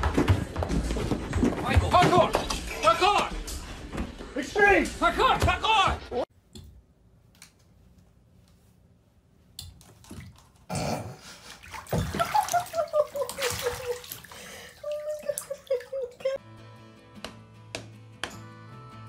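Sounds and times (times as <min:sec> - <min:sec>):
water splashing in bathtub: 0:01.4 - 0:03.2, 0:09.6 - 0:16.4.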